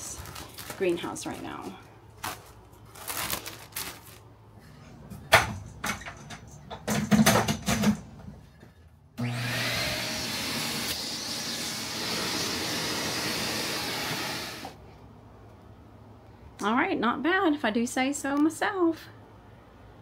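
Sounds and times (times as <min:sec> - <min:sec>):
shop vacuum running: 0:09.2 - 0:14.8.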